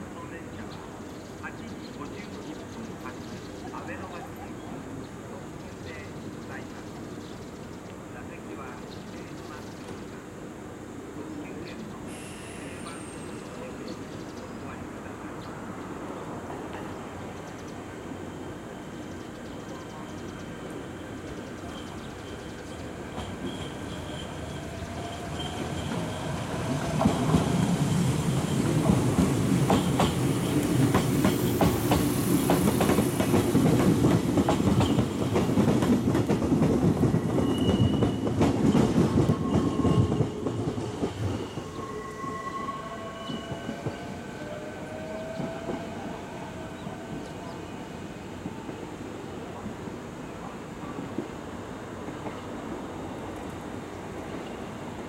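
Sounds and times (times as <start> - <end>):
electric train running past: 0.0 - 55.0
train wheels clacking over rail joints: 28.3 - 41.7.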